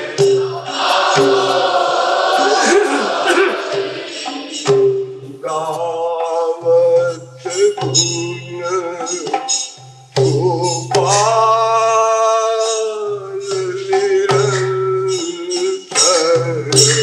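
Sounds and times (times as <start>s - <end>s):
man singing devotional song: 0.0s - 1.6s, 5.3s - 17.0s
instrumental accompaniment: 0.0s - 17.0s.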